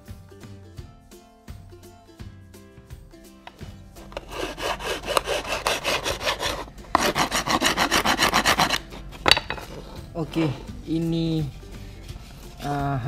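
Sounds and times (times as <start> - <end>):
metal file rasping: 4.0 - 10.8.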